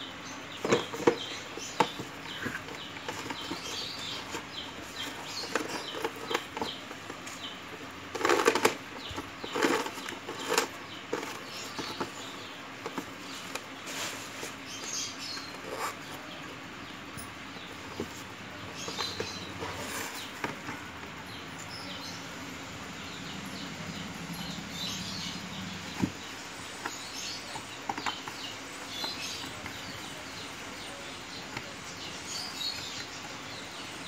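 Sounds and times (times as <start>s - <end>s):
electrical wire rustling and scraping: 0.5s - 16.5s, 17.2s - 21.4s.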